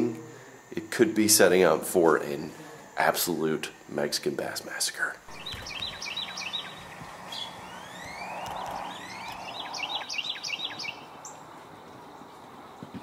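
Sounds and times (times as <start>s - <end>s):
faint background hiss: 0.0s - 13.0s
birds chirping: 5.2s - 13.0s
rising whistled bird sweeps: 5.3s - 11.4s.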